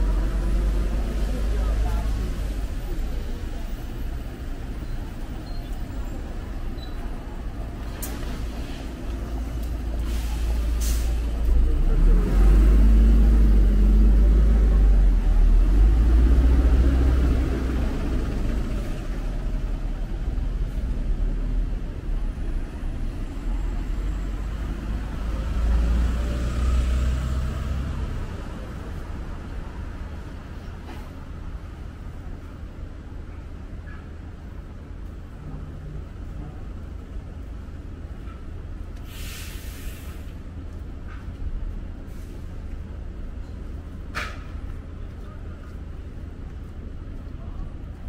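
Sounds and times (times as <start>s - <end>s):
heavy vehicle engine accelerating: 0.0s - 5.2s, 7.2s - 31.2s
city street traffic: 0.0s - 48.0s
short high hisses: 39.1s - 40.3s.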